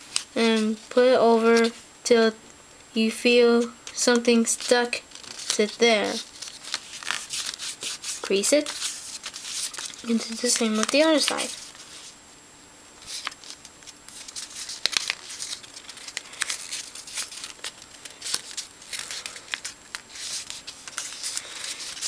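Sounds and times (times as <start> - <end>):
paper rustling and crinkling: 3.9 - 12.2, 13.0 - 22.0.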